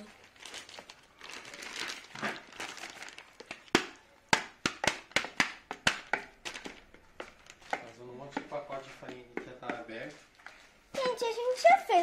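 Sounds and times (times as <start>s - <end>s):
dough squelching in a bowl: 0.0s - 11.6s
sharp smacking clicks of dough: 3.4s - 10.1s.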